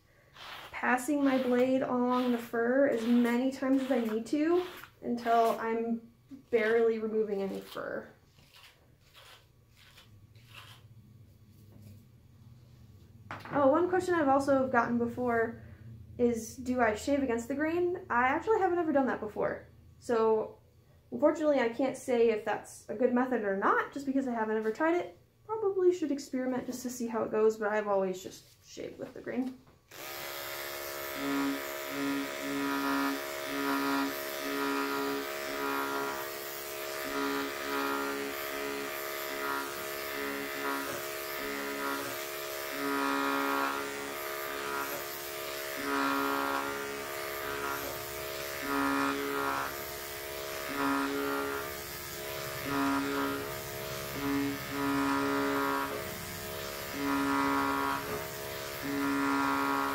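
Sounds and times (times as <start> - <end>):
electric clippers buzzing: 0.4 - 5.8, 29.9 - 59.9.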